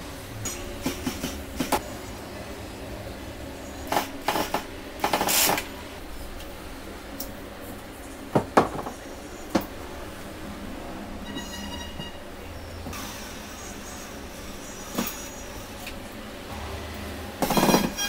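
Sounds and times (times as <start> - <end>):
wood and tools knocking on workbench: 8.3 - 9.6.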